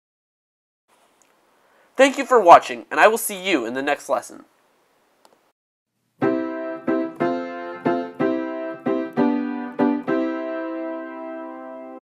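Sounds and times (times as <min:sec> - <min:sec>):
piano chords: 0:06.2 - 0:12.0.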